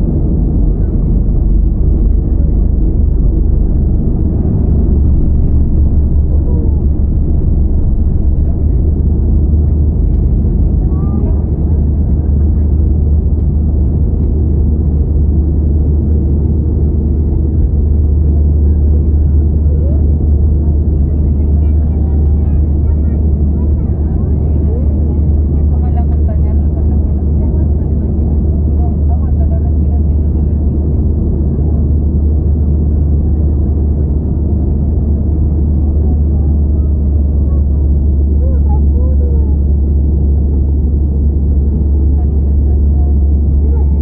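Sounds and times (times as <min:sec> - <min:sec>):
rushing air: 0:00.0 - 0:10.8
jet engine cabin rumble: 0:00.0 - 0:44.0.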